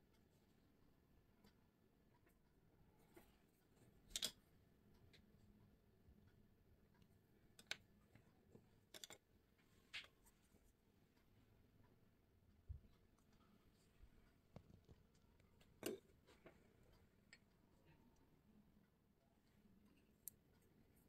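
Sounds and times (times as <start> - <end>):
tools clicking and tapping: 3.8 - 4.4, 7.5 - 9.3.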